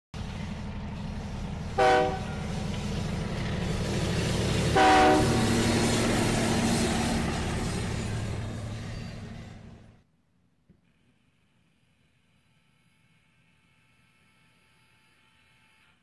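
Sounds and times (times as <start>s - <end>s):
diesel engine running sound: 0.1s - 10.0s
multi-tone horn blasts: 1.7s - 2.5s, 4.7s - 5.7s.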